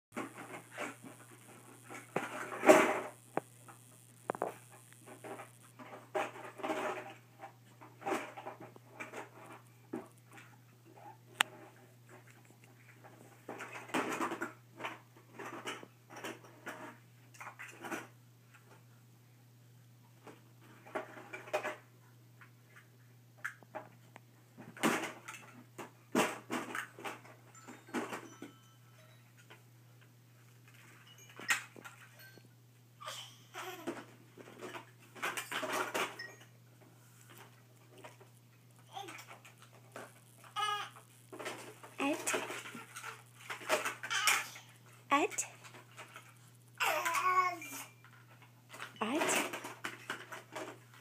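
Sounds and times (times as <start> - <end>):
plastic blocks clicking and clattering: 33.8 - 36.2, 37.3 - 44.8, 45.5 - 51.0.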